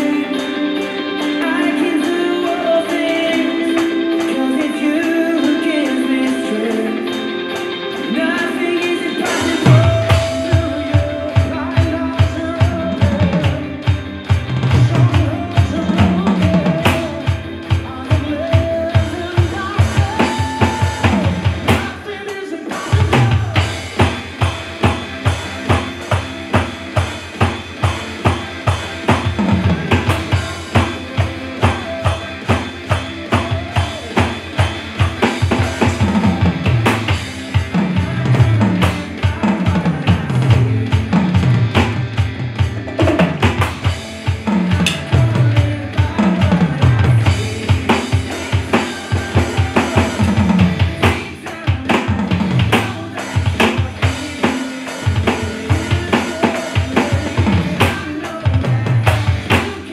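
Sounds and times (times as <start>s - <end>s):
electronic drum kit: 0.0s - 59.9s
pop-rock backing track: 0.0s - 59.9s
sustained keyboard chords: 23.0s - 57.5s.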